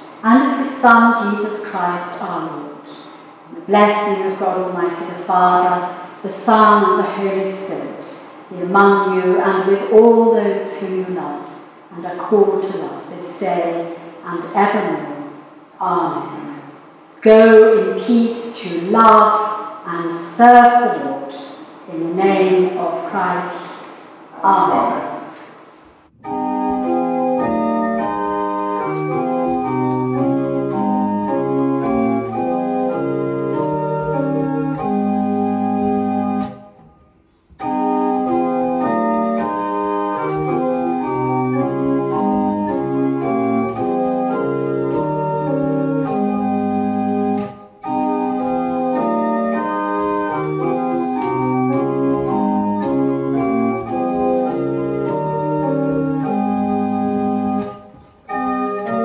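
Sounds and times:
chamber organ playing: 26.1s - 59.0s.

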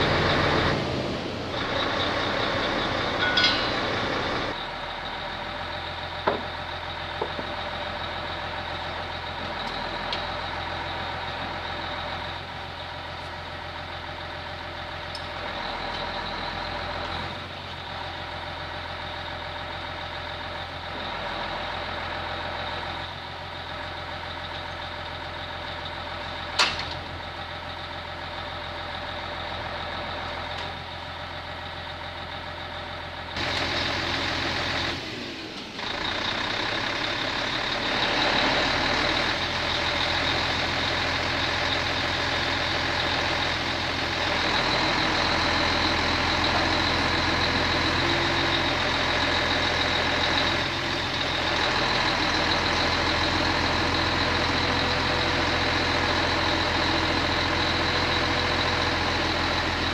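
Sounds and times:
heavy engine running: 0.0s - 59.9s.

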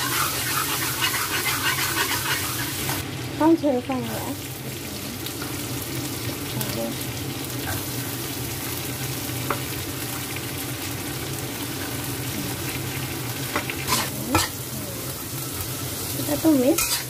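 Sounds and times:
metal spatula scraping a wok: 0.0s - 3.0s, 13.8s - 14.6s, 16.7s - 17.0s
food sizzling in a wok: 0.0s - 17.0s.

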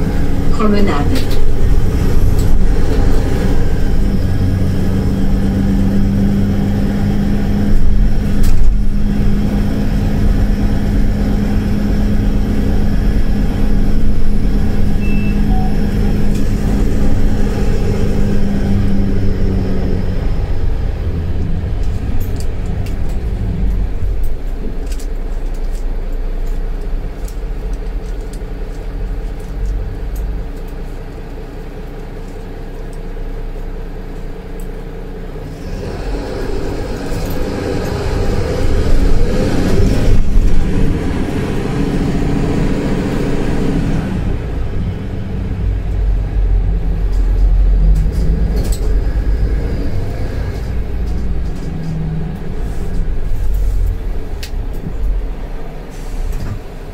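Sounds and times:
bus drive hum: 0.0s - 56.9s
held tone: 14.9s - 16.4s.

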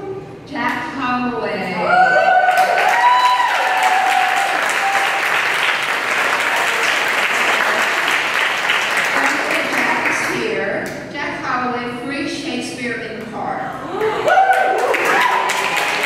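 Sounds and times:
audience applauding: 2.3s - 10.3s, 14.0s - 16.0s.

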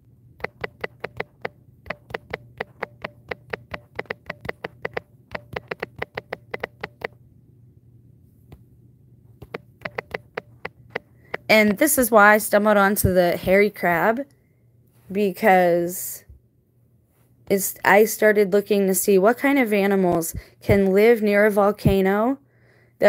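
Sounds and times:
typing taps on smartphone: 0.4s - 7.2s, 9.4s - 11.8s.

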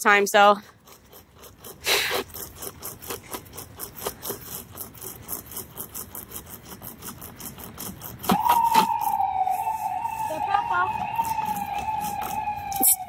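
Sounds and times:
hand chainsaw rasping through branch: 0.6s - 9.1s
siren: 8.3s - 13.0s.

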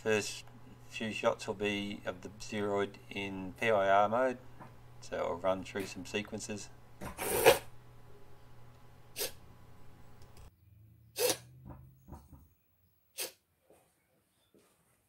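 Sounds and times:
low steady hum: 0.0s - 13.0s
short sharp hissing bursts: 13.2s - 13.4s.

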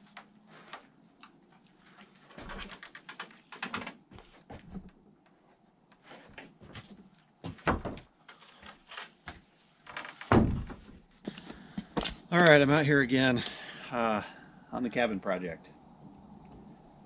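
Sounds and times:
heavy thump: 10.3s - 10.9s.

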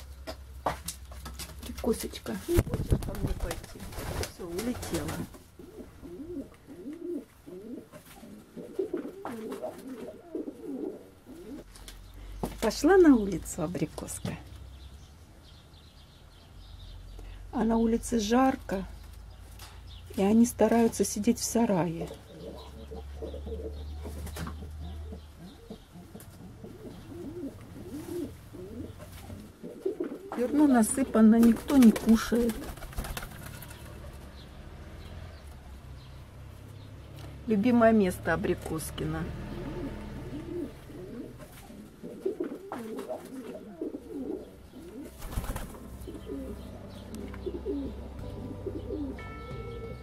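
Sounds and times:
pigeons cooing: 2.3s - 11.8s, 22.2s - 34.5s, 39.4s - 49.3s.

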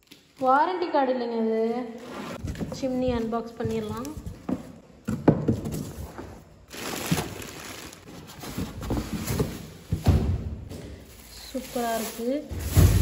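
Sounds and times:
cardboard rustling and scraping: 2.0s - 4.8s, 5.5s - 10.2s.

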